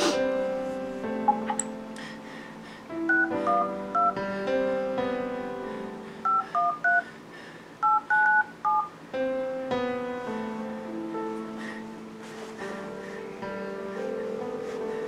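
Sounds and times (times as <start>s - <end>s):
phone keypad beeps: 3.1s - 4.2s, 6.3s - 7.0s, 7.8s - 8.9s.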